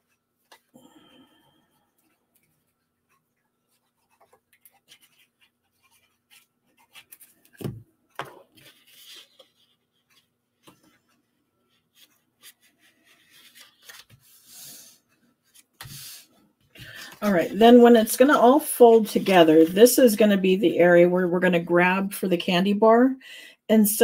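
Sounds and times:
paper rubbing and clicks: 0:02.0 - 0:14.6.

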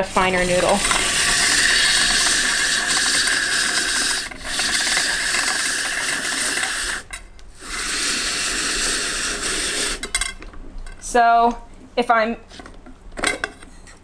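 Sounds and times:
drum grater rasping: 0:00.0 - 0:10.1.

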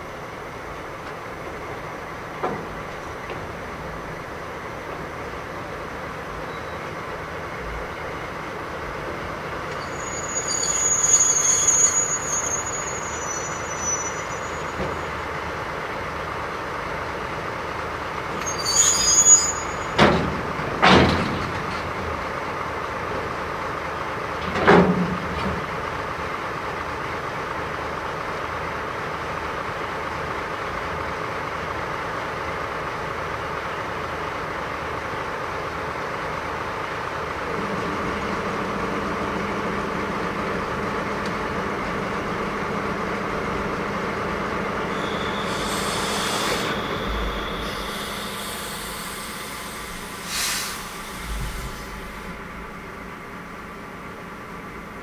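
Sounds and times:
locomotive engine rumble: 0:00.0 - 0:55.0
train clanks: 0:01.0 - 0:08.2, 0:08.8 - 0:16.1, 0:17.0 - 0:28.6, 0:33.2 - 0:54.7
brake and wheel squeal: 0:06.4 - 0:07.0, 0:09.7 - 0:15.4, 0:18.3 - 0:20.3, 0:44.8 - 0:52.4.

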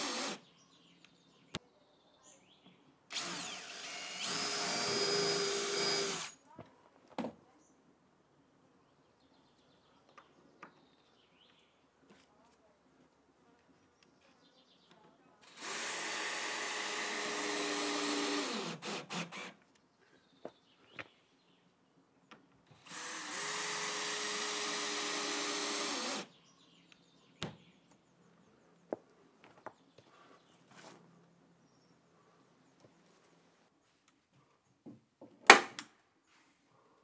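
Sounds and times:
cordless drill driving screws: 0:00.0 - 0:00.4, 0:03.1 - 0:06.4, 0:15.4 - 0:19.6, 0:22.8 - 0:26.3.

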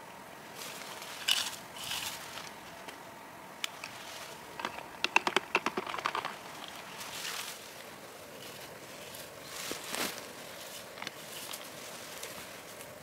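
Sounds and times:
bushes rustling: 0:00.4 - 0:13.0
berries rattling into plastic jug: 0:04.6 - 0:06.8.

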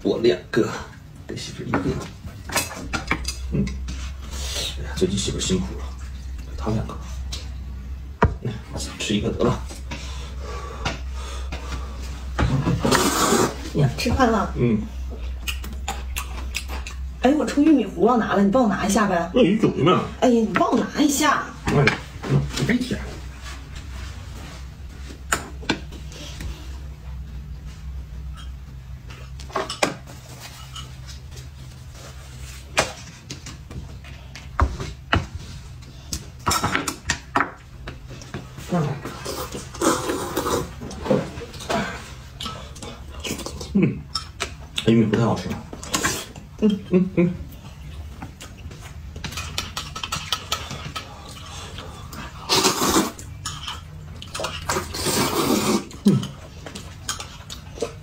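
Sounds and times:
low steady hum: 0:00.0 - 0:58.0
noodles slurped: 0:12.8 - 0:13.6, 0:52.4 - 0:53.3, 0:54.3 - 0:56.3.

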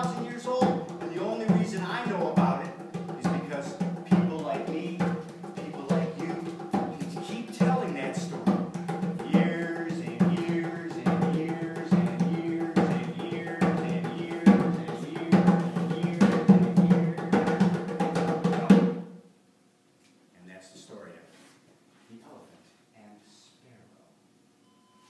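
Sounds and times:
hand drum strokes: 0:00.0 - 0:19.1.

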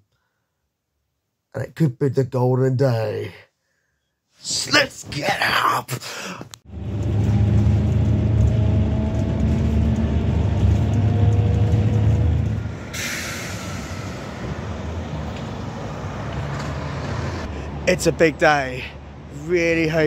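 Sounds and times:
diesel coach engine rumble: 0:06.7 - 0:18.2
air brake hiss: 0:12.9 - 0:14.6.

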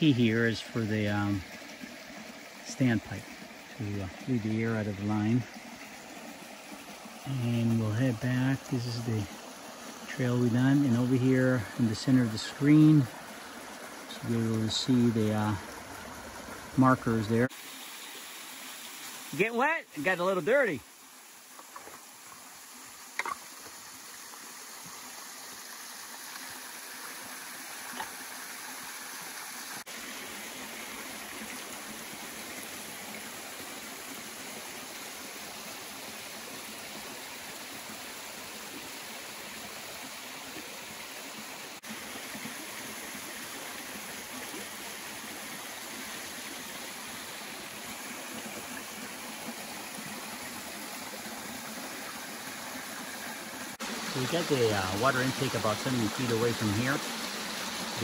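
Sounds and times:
small waterfall rushing: 0:00.0 - 0:58.0.

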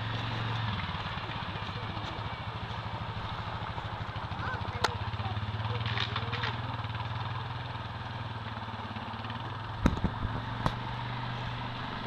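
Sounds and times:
quad bike engine running: 0:00.0 - 0:12.0.

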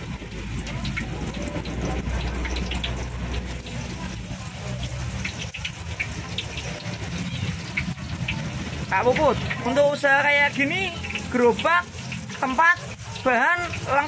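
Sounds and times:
oil sizzling in a wok: 0:00.0 - 0:14.0.

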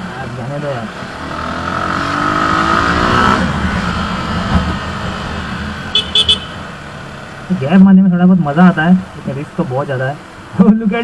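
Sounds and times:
motorcycle engine revving: 0:00.6 - 0:07.5.

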